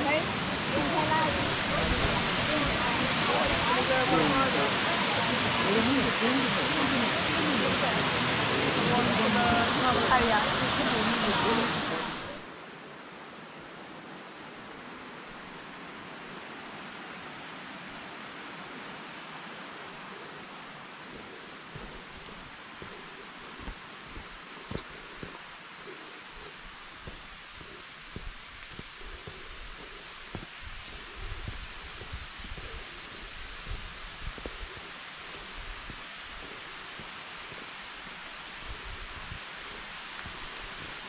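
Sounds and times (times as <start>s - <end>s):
waterfall rushing: 0.0s - 12.4s
soft low thumps: 21.1s - 40.9s.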